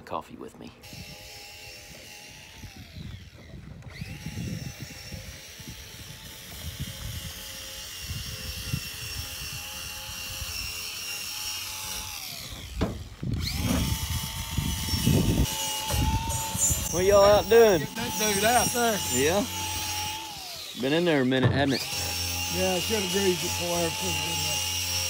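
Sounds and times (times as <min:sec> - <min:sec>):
small electric motor whining: 0:00.7 - 0:25.0.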